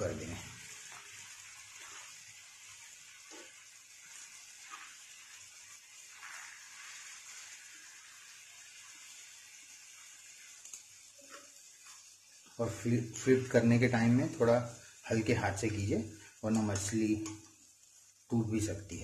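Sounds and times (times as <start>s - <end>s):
fish sizzling faintly in a pan: 0.0s - 19.0s
spatula scraping a pan: 1.7s - 2.2s, 3.2s - 7.7s, 11.1s - 12.2s.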